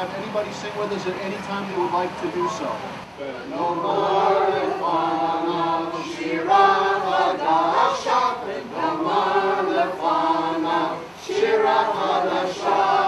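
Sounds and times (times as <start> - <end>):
group of voices singing: 3.4 - 13.0.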